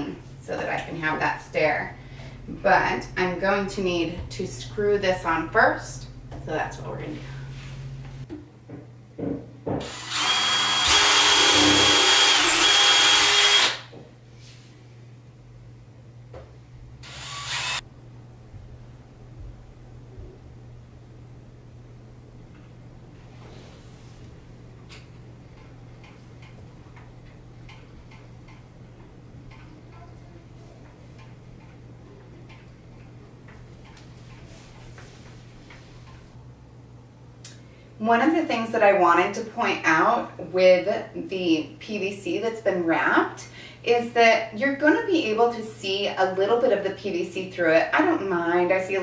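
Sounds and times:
steady low hum: 0.0s - 49.0s
cordless drill motor whine: 9.8s - 13.9s, 17.0s - 17.8s.

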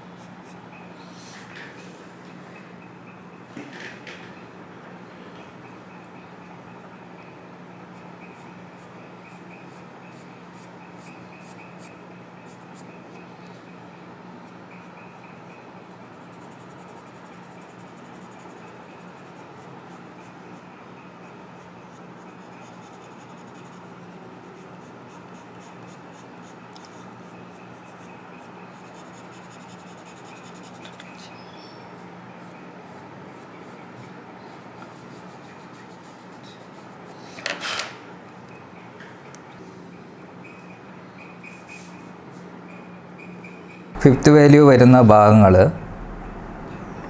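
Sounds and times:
pencil scratching on paper: 8.3s - 12.9s, 14.9s - 20.6s, 21.6s - 31.2s, 32.4s - 37.1s
steady low hum: 43.9s - 47.0s
brief loud noise: 44.0s - 47.0s.

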